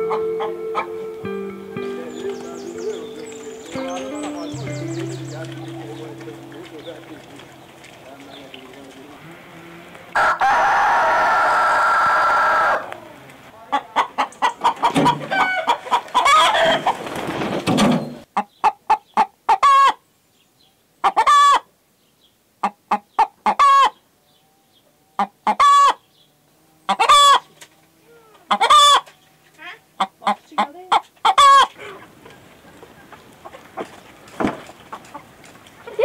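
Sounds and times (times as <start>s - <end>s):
chicken clucking: 0.0s - 1.1s, 1.8s - 12.9s, 13.6s - 17.1s, 18.4s - 20.0s, 21.0s - 21.6s, 22.6s - 24.0s, 25.0s - 26.0s, 26.9s - 36.0s
hen cackling: 0.0s - 8.2s, 9.1s - 17.0s, 18.4s - 20.0s, 21.0s - 21.7s, 22.6s - 24.0s, 25.2s - 26.0s, 26.8s - 34.0s
rooster crowing: 10.1s - 12.9s, 15.0s - 16.9s.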